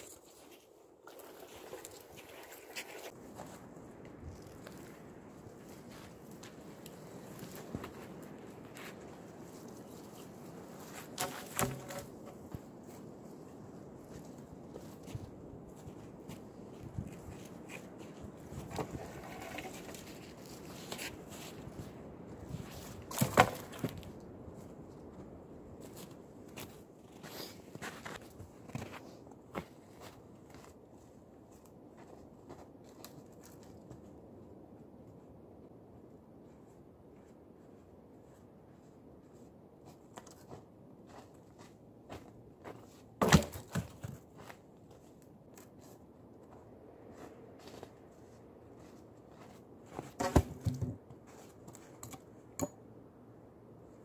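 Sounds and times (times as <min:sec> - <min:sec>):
pole thudding onto log: 0:11.2 - 0:12.1, 0:43.2 - 0:44.2, 0:50.2 - 0:51.0
footsteps crunching in snow: 0:44.0 - 0:50.3.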